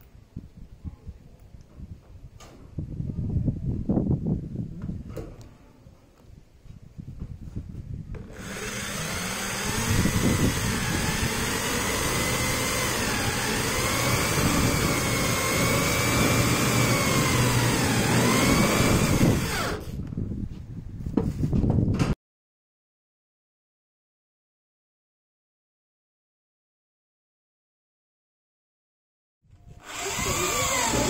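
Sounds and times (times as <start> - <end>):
electric drill motor whine: 8.2 - 20.0, 29.6 - 31.0.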